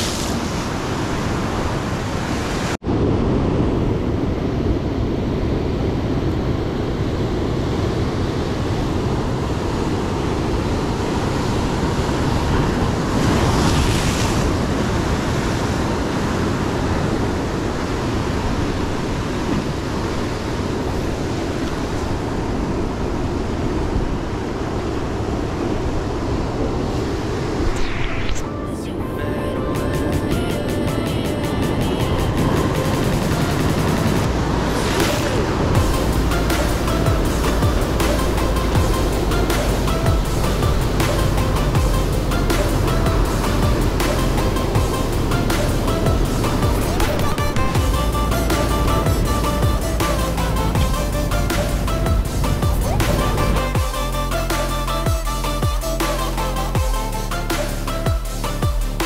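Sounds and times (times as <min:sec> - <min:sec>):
loud wave crash: 0:00.0 - 0:23.1, 0:25.8 - 0:59.0
surf breaking over rocks: 0:00.0 - 0:53.7
wind on microphone: 0:00.0 - 0:54.2.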